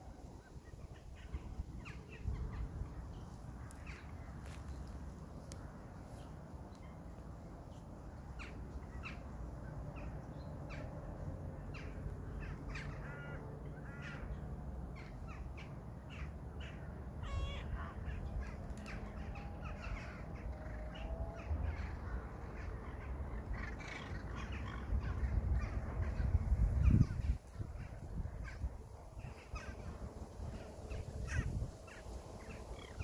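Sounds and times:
crows cawing: 12.4s - 14.3s.

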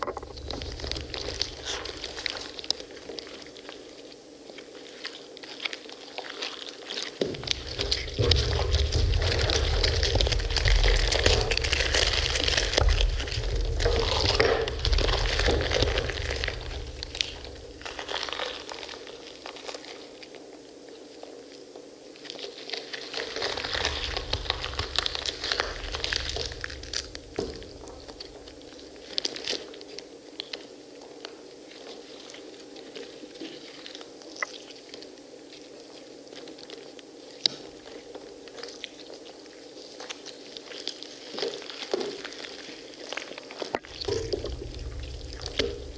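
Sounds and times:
low rumble: 0.0s - 3.0s, 7.3s - 18.9s, 23.5s - 29.0s, 43.9s - 45.9s
pomegranate rind crunching: 0.0s - 20.4s, 22.3s - 30.7s, 32.8s - 45.9s.

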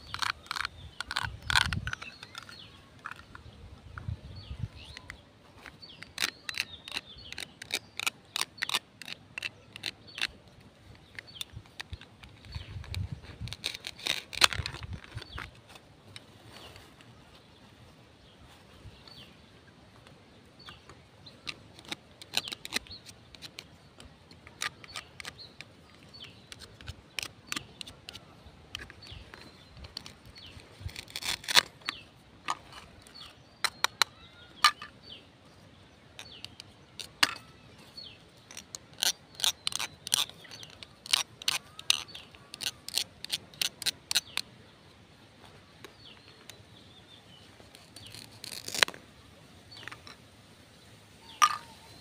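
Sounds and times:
plastic toys clicking and tapping: 0.0s - 3.4s, 4.9s - 15.5s, 21.4s - 30.2s, 30.8s - 34.9s, 36.2s - 37.6s, 38.5s - 44.4s, 51.4s - 51.8s
velcro rasps: 0.0s - 3.4s, 5.6s - 16.9s, 21.4s - 34.9s, 36.2s - 44.4s, 47.5s - 49.0s.

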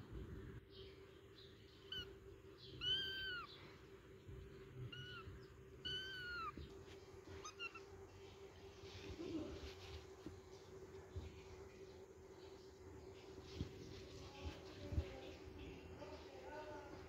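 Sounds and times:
cat meowing: 2.8s - 3.6s, 4.9s - 6.6s, 7.3s - 7.9s.

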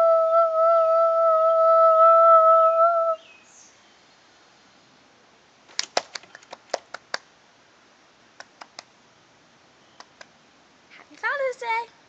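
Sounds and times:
person clapping hands: 5.8s - 7.3s.

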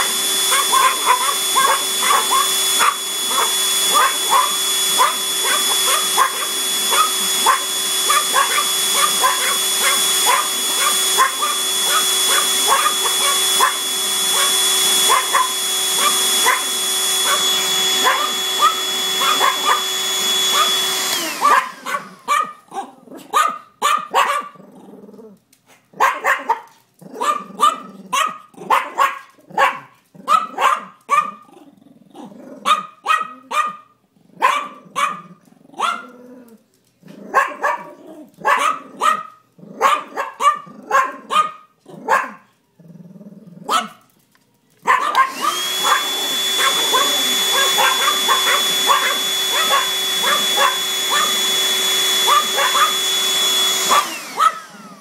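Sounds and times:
handheld vacuum whine: 0.0s - 22.6s, 44.3s - 55.0s
small dogs yapping: 0.0s - 24.6s, 25.8s - 31.6s, 32.2s - 42.5s, 43.6s - 44.1s, 44.7s - 55.0s.

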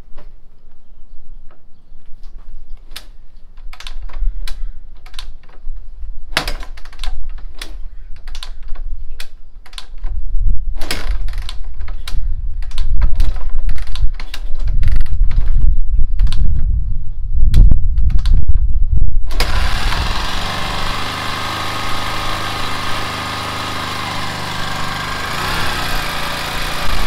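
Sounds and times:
engine turning over: 19.3s - 27.0s
motorcycle kick-start clacks: 19.3s - 27.0s.

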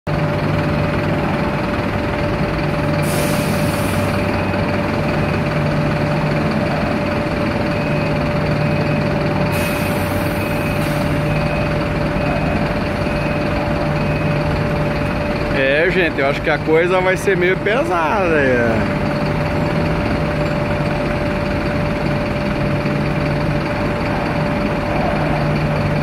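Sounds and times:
diesel engine drone: 0.1s - 26.0s
short air hisses: 3.0s - 4.1s.

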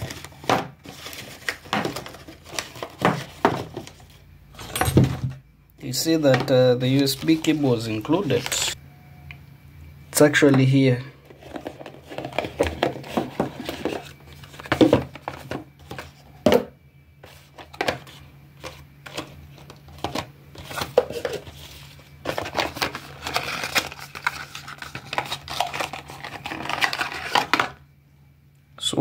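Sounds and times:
clicks and knocks of packaging: 0.0s - 4.0s, 11.4s - 16.7s
cardboard box rustling: 0.0s - 4.2s.

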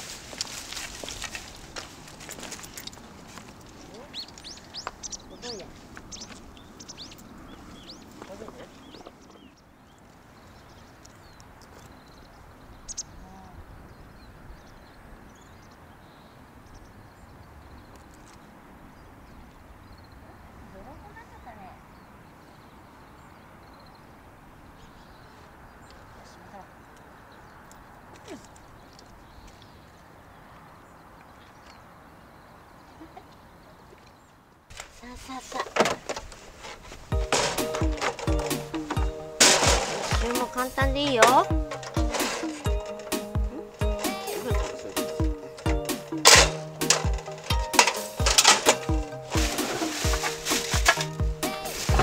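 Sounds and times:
outdoor background rush: 0.0s - 52.0s
bird chirps: 2.5s - 20.3s.

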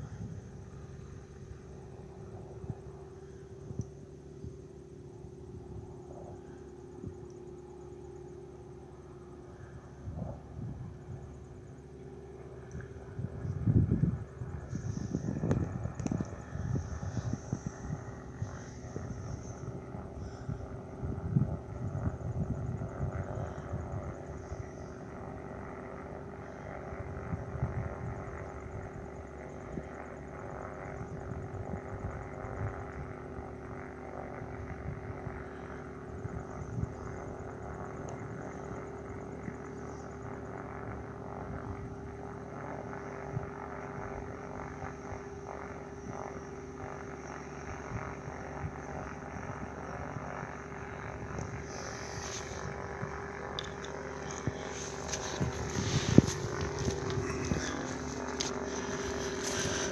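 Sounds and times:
propeller engine drone: 0.0s - 59.9s.

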